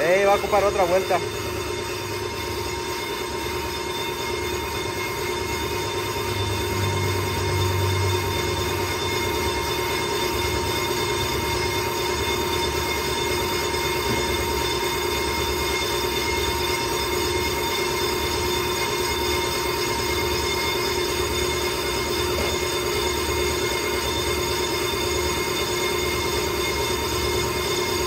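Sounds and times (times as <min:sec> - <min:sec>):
motor hum: 0:00.0 - 0:15.9
brake lathe metallic whine: 0:00.0 - 0:28.0.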